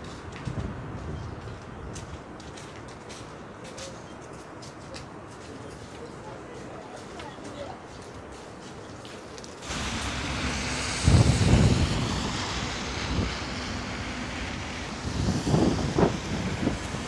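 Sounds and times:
wind buffeting microphone: 0.0s - 2.6s, 9.6s - 17.0s
street and traffic hiss: 0.0s - 17.0s.

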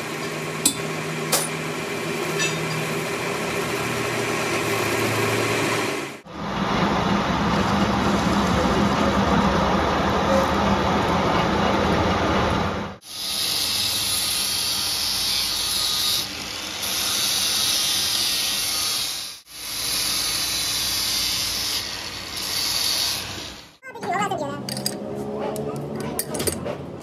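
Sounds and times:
angle grinder sanding metal: 13.0s - 23.8s.

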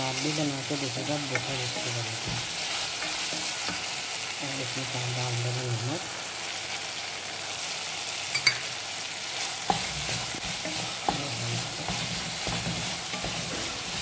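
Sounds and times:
okra sizzling in a pot: 0.0s - 14.0s
wooden spatula scraping a pot: 9.6s - 14.0s.

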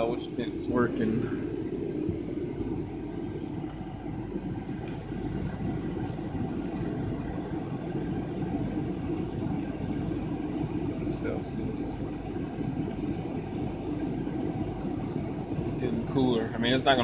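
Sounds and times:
air-conditioning blower running: 0.0s - 17.0s.

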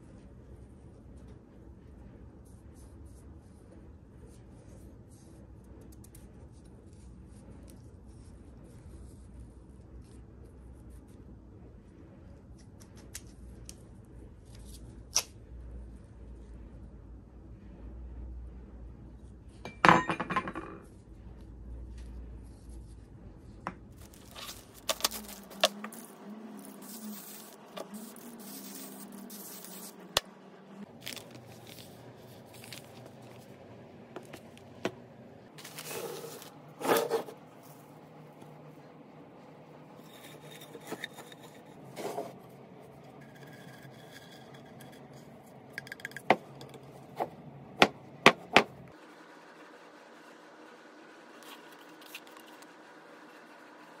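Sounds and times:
tools scraping on workbench: 35.6s - 37.4s, 40.0s - 42.4s.

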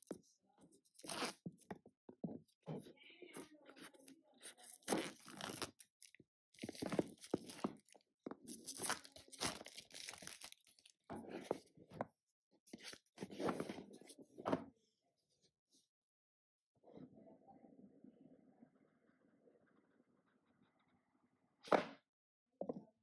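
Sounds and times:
cardboard and plastic crinkling: 4.4s - 11.6s.

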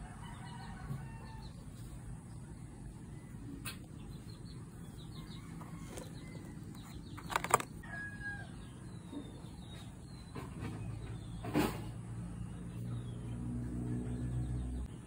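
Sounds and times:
chickens clucking and chirping: 0.0s - 15.0s.

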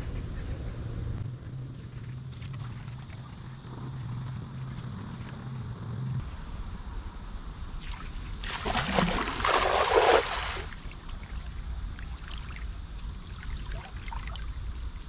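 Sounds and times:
cast net splashing into water: 7.8s - 10.8s.

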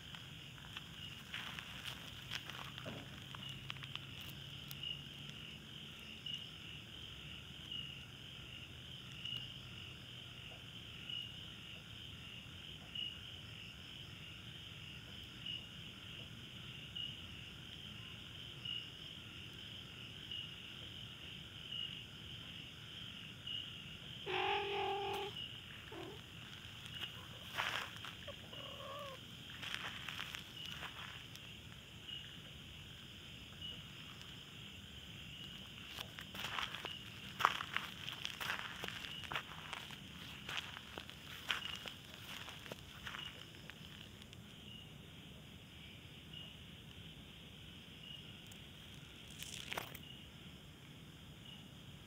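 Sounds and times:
night insects chirring: 0.0s - 52.0s
animal call: 24.2s - 26.2s, 27.0s - 29.2s.

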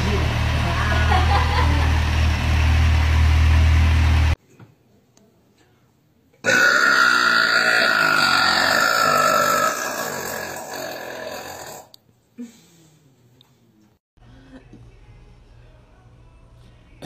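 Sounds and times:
woman burping: 6.4s - 11.9s.

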